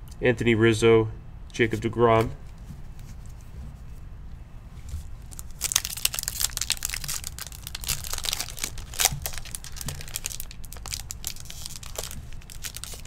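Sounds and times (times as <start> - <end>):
foil wrapper tearing and crinkling: 5.2 - 13.0.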